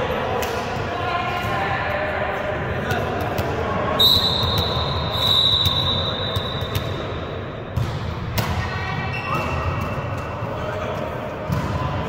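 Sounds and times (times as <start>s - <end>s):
gym crowd noise: 0.0s - 12.0s
referee whistle blast: 4.0s - 6.8s.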